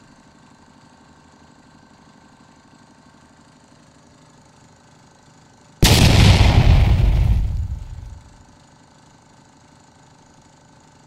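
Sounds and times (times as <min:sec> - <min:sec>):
drilling rig engine running: 0:05.8 - 0:08.4.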